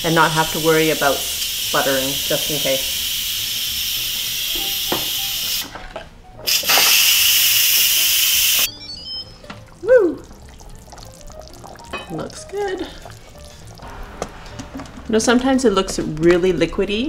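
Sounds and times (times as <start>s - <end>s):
steam release valve hissing: 0.1s - 5.7s, 6.5s - 8.7s.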